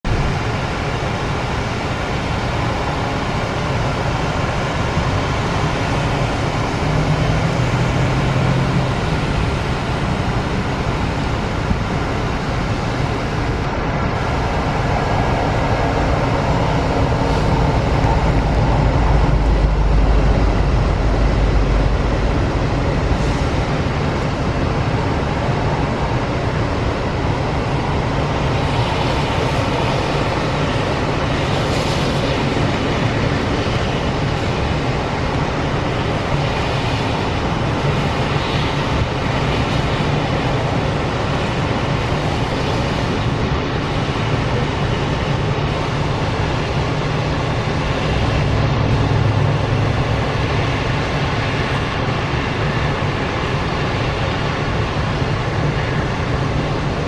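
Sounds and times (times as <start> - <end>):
diesel locomotives rumbling: 0.0 - 57.0
freight cars rolling past: 0.1 - 39.1, 43.1 - 56.9.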